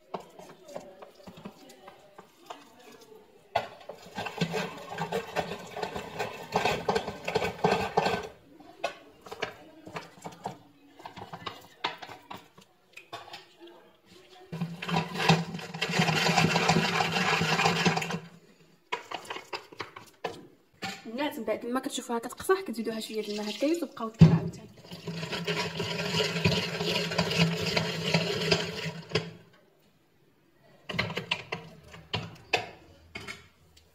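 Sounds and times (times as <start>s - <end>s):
food mill scraping and grinding: 3.9s - 8.4s, 14.5s - 20.1s, 24.8s - 29.4s.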